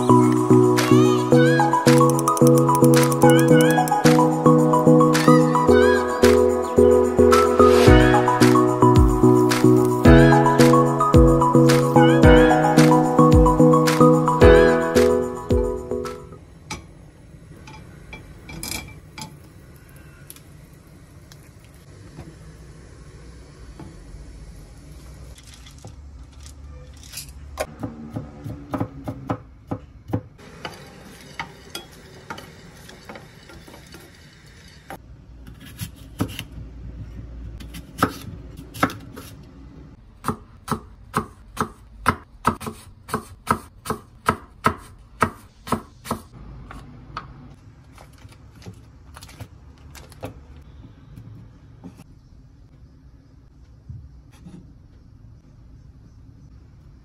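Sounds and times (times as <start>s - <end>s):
food sizzling in frying pan: 30.4s - 35.0s
knife chopping on wooden board: 37.6s - 39.3s, 40.2s - 46.3s.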